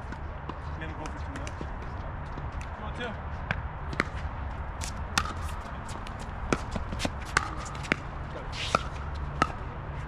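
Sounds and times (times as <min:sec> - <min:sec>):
shoes scuffing on court: 0:03.9 - 0:09.5.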